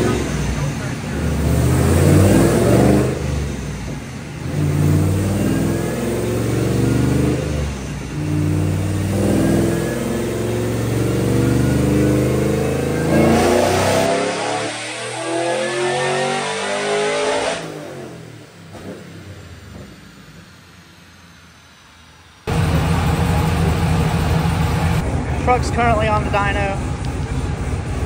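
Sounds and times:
engine running and revving: 0.0 - 28.0
faint rising whine: 17.8 - 27.9.

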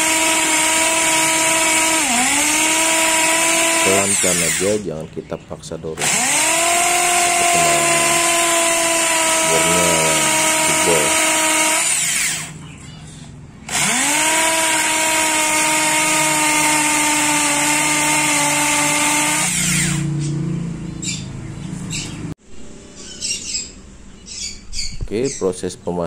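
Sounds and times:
impact drill boring into wood: 0.0 - 4.8, 6.0 - 12.6, 13.7 - 20.1.

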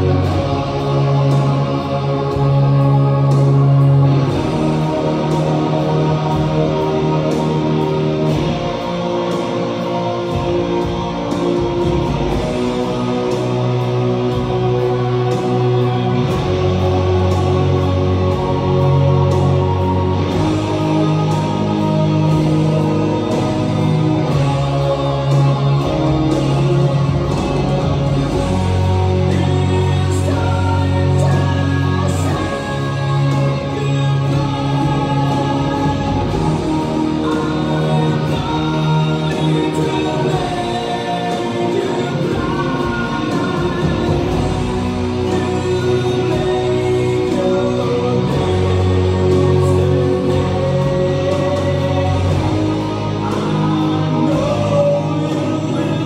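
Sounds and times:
electric guitar: 0.0 - 56.0
metal backing track: 0.0 - 56.0
person singing: 0.0 - 56.0.

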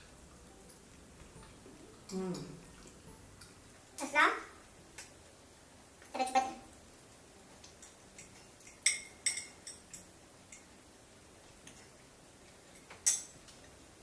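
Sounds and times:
fork clinking on ceramic plate: 7.8 - 10.7.

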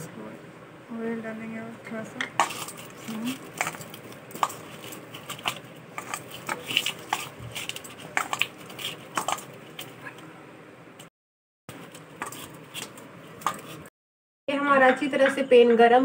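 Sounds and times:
dough squishing: 2.4 - 10.3, 11.7 - 13.9.

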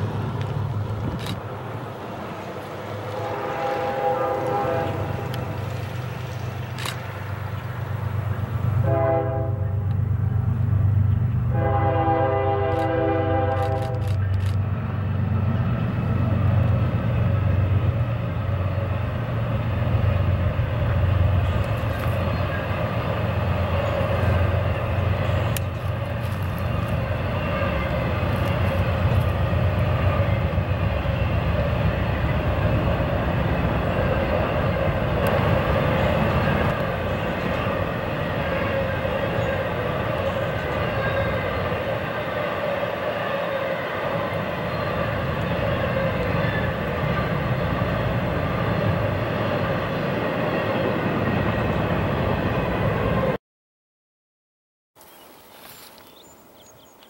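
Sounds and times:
locomotive engine rumble: 0.0 - 53.4
train cars rolling: 0.0 - 53.4
locomotive air horn: 3.0 - 5.6, 8.7 - 10.0, 11.5 - 14.2, 25.9 - 30.5, 36.0 - 49.7.

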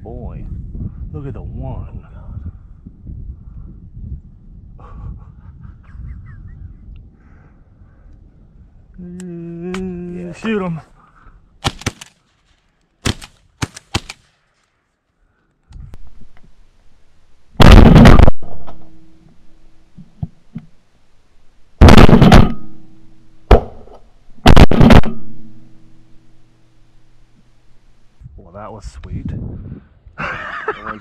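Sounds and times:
shotgun shots: 11.6 - 12.2, 13.0 - 14.4, 17.6 - 19.1, 21.8 - 26.1.

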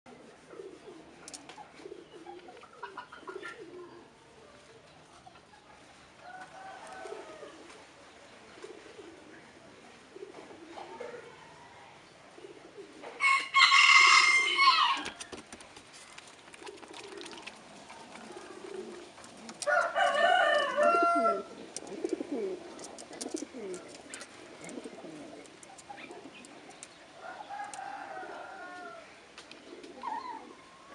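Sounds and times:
pigeons cooing: 0.1 - 4.4, 6.3 - 30.9.

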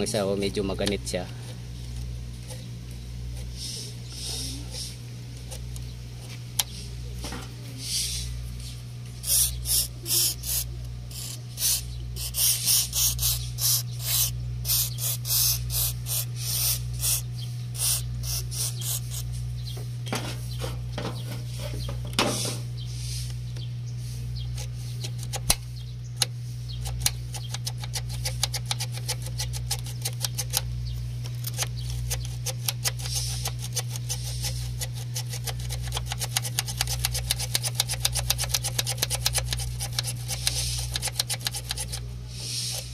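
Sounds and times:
steady low hum: 0.0 - 42.9
aerosol spray hissing bursts: 9.2 - 17.2.

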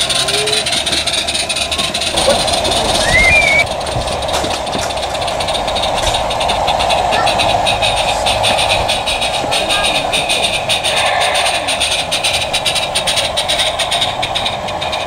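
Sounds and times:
steam locomotive hissing: 0.0 - 15.0
rising chirp: 2.1 - 3.7, 10.7 - 12.8.

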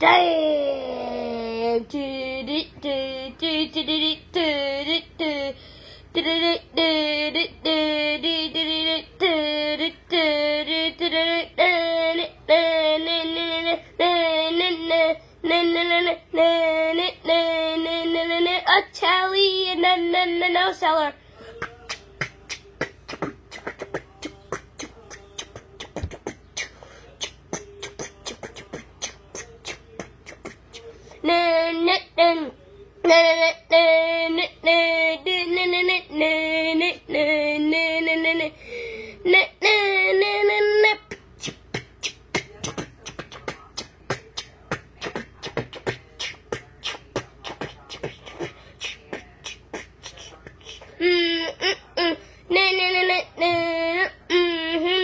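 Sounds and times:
person beatboxing: 21.5 - 30.9, 41.0 - 51.0.

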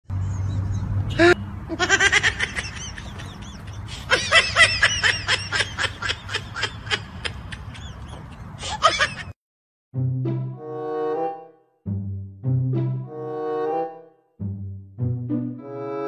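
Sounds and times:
person giggling: 1.7 - 9.3.

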